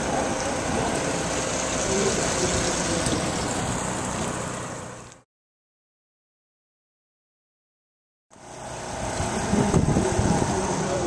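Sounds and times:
outboard boat motors idling: 0:00.0 - 0:05.2, 0:08.3 - 0:11.0.

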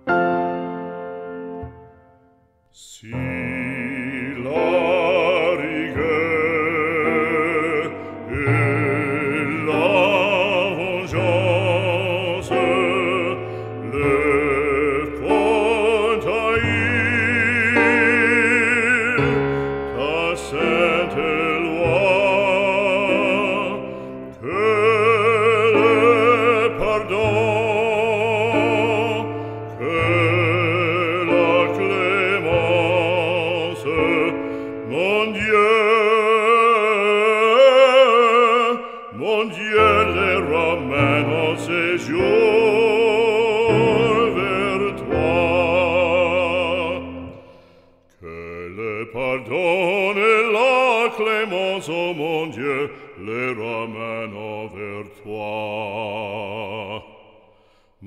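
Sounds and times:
instrumental accompaniment: 0:00.0 - 0:02.7
operatic solo singing: 0:02.6 - 0:57.5.

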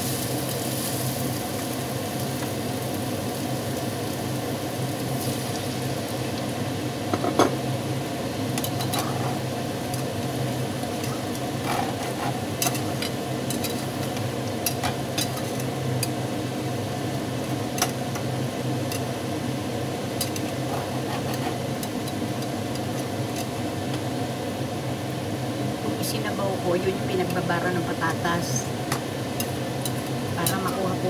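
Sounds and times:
steady low hum: 0:00.0 - 0:31.0
metal spatula scraping pot: 0:11.1 - 0:12.9, 0:20.3 - 0:21.7.

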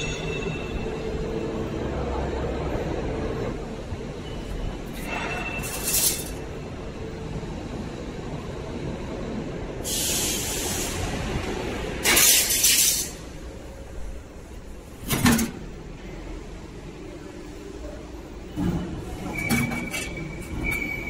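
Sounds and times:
metal plates scraping and clattering: 0:04.9 - 0:06.5, 0:18.6 - 0:21.0.

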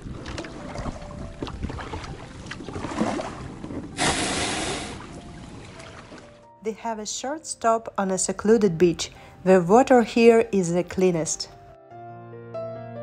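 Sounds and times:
rushing swish of water: 0:00.0 - 0:06.2
water lapping around a kayak: 0:00.0 - 0:06.5.

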